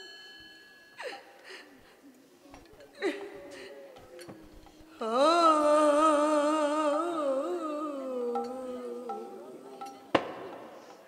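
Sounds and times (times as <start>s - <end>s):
woman singing: 4.9s - 10.5s.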